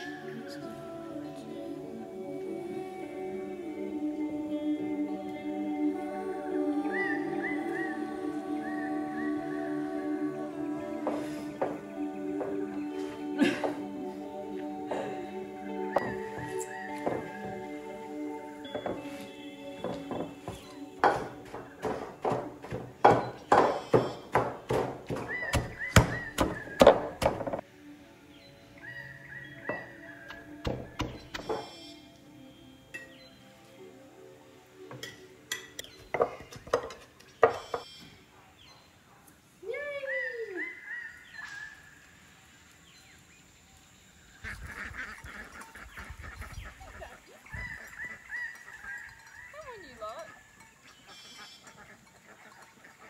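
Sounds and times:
repeated high bird calls: 0:06.7 - 0:10.4, 0:15.6 - 0:27.6, 0:28.2 - 0:33.5, 0:35.8 - 0:38.9, 0:39.9 - 0:42.1, 0:44.4 - 0:53.0
waterfowl honking and quacking: 0:15.8 - 0:21.8, 0:44.4 - 0:53.0
wooden tampers thudding in bowls: 0:18.7 - 0:27.6.

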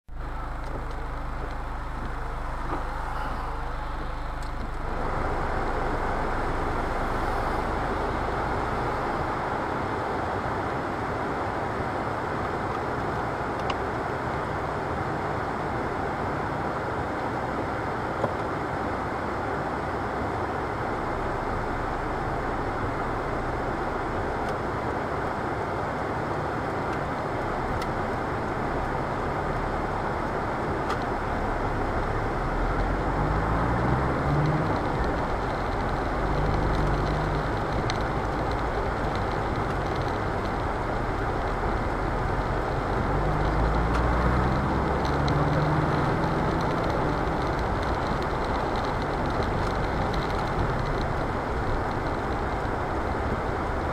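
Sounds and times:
low steady hum: 0:00.1 - 0:11.2
rain on vehicle: 0:00.1 - 0:53.9.

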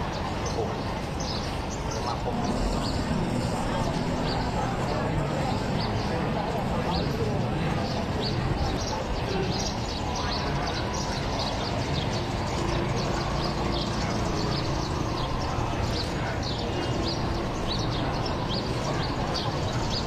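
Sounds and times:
birds chirping: 0:00.0 - 0:20.0
low outdoor rumble: 0:02.0 - 0:08.6.

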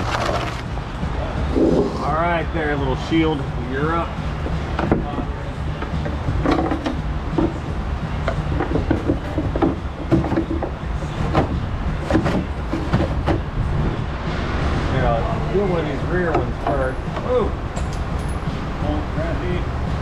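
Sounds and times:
steady low hum: 0:00.6 - 0:10.1
metal knocking and rattling: 0:04.7 - 0:13.5.

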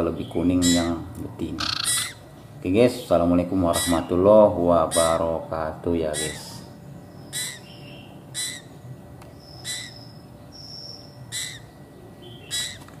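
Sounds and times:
bird chirps: 0:00.1 - 0:00.9, 0:01.6 - 0:02.3, 0:06.2 - 0:12.9.

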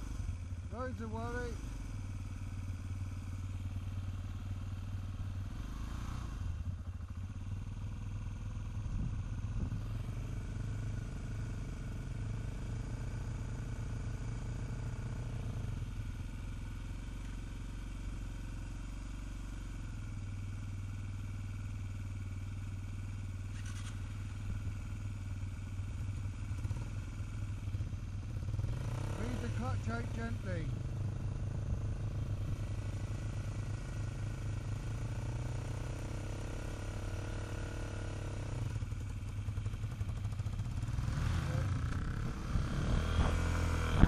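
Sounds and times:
motorcycle engine idling: 0:00.0 - 0:44.0
second motorcycle pulling up: 0:22.6 - 0:44.0.

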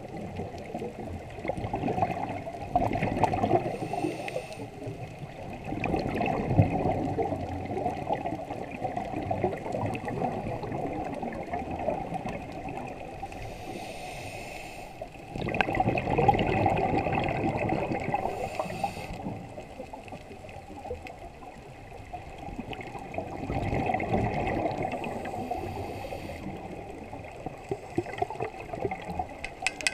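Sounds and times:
diver exhaling bubbles underwater: 0:00.1 - 0:04.0, 0:05.6 - 0:13.1, 0:15.3 - 0:19.5, 0:22.6 - 0:29.4
regulator hiss: 0:13.4 - 0:15.0, 0:18.3 - 0:19.2.

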